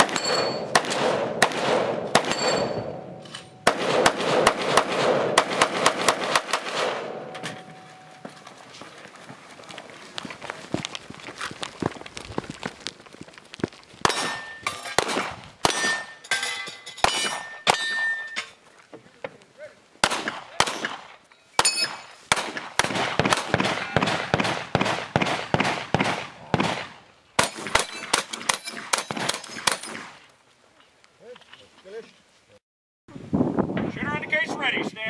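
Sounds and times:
steel targets ringing: 0.0s - 0.8s, 2.2s - 3.7s, 7.1s - 8.4s, 15.6s - 18.6s, 21.5s - 22.2s
gunshots: 0.0s - 8.0s, 14.0s - 16.2s, 20.0s - 30.2s.

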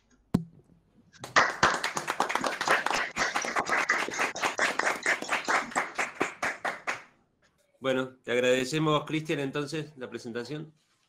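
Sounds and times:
rapid hand clapping: 1.2s - 7.1s.

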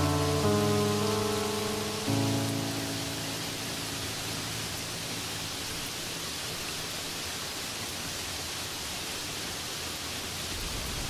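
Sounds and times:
waterfall hissing: 0.0s - 11.0s.

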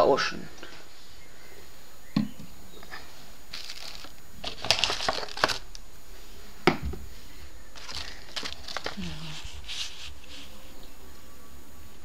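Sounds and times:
cardboard box and paper rustling: 3.5s - 5.7s, 7.8s - 10.7s.

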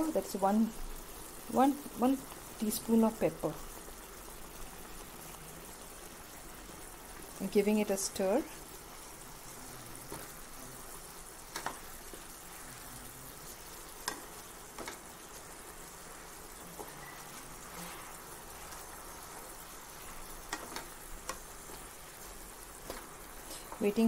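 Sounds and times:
chicken sizzling in braise: 0.0s - 24.0s.

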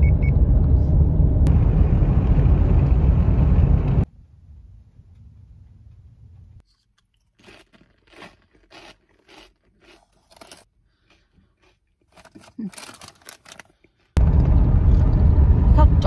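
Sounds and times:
low rumble: 0.0s - 6.6s, 14.2s - 16.0s
crunchy chips being chewed: 6.7s - 14.2s.

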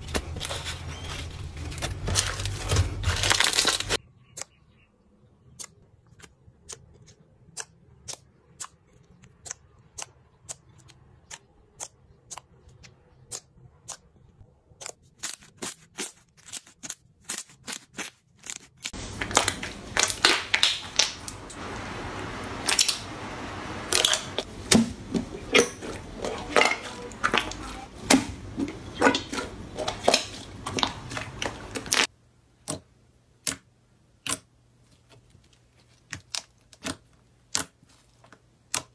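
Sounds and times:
slime clicking and popping: 19.2s - 21.4s, 36.1s - 37.8s, 38.7s - 38.9s.

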